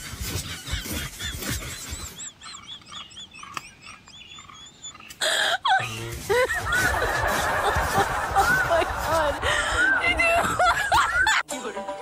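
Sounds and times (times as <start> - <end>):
laughing sound effect: 5.3 - 11.4.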